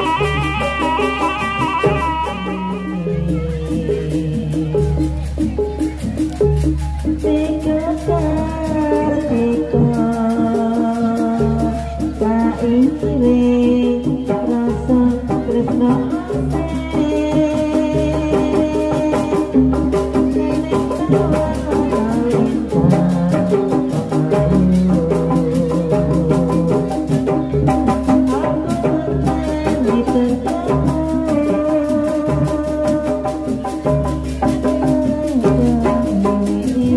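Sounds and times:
kendang drums: 0.0 - 36.9
metallophones: 0.0 - 36.9.

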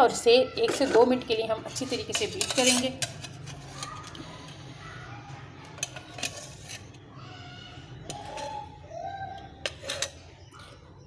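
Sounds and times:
dishes and utensils clinking: 0.5 - 4.6, 5.6 - 7.1, 8.0 - 11.0.

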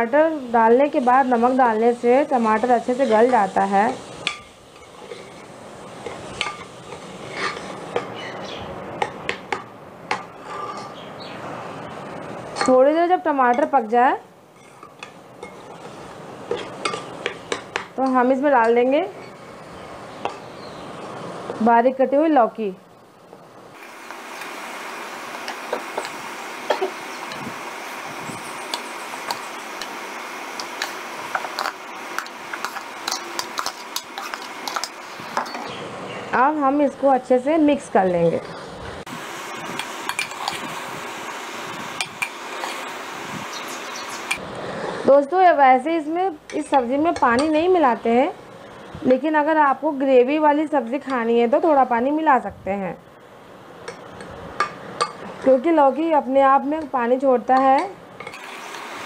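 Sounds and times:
steady background hiss: 0.0 - 59.0
spoon scraping metal pot: 4.2 - 8.2, 10.1 - 11.0, 30.6 - 35.6, 39.8 - 40.7.

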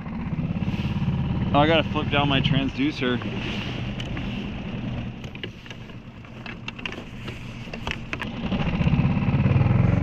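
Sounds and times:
outboard motor running: 0.0 - 10.0
light clicks and knocks: 5.2 - 8.3.

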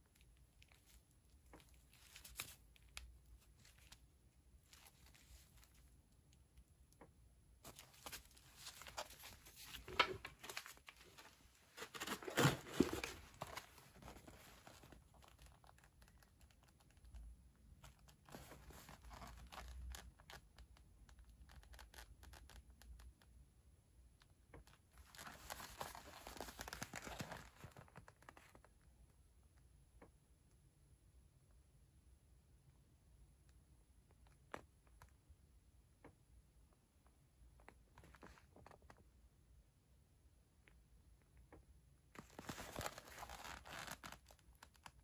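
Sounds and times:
plastic wrappers crinkling: 7.6 - 17.0, 25.0 - 27.9, 42.2 - 44.9
cardboard box rustling: 7.7 - 15.0, 25.1 - 27.8.

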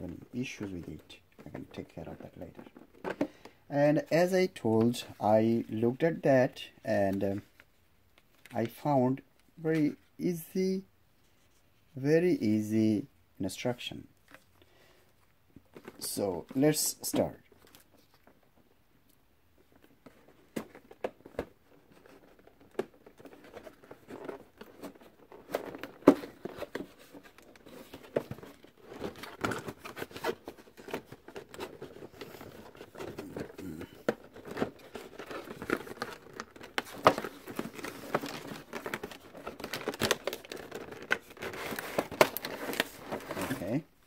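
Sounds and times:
plastic packaging crinkling: 19.8 - 43.8.

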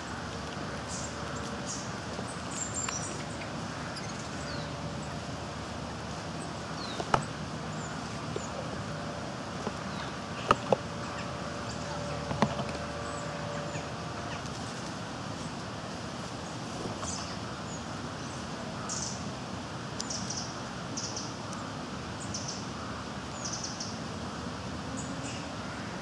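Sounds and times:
steady background hiss: 0.0 - 26.0
small birds chirping: 0.8 - 9.0, 20.0 - 21.6.

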